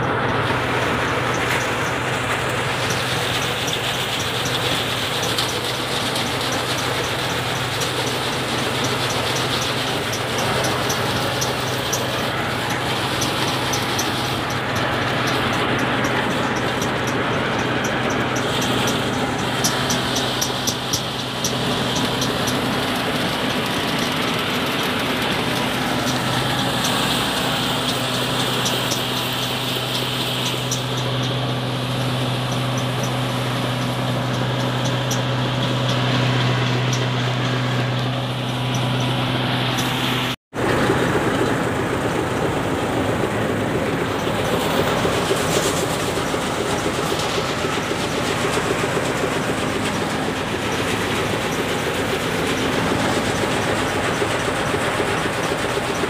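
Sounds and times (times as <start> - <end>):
thresher rattling: 0.0 - 56.0.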